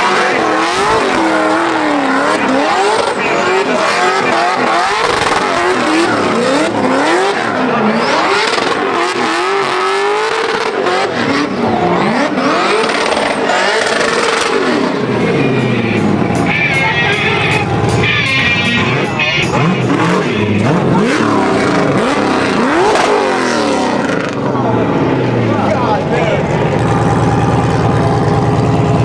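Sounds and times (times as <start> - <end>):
car engine revving: 0.0 - 29.0
tyres screeching: 12.0 - 23.2.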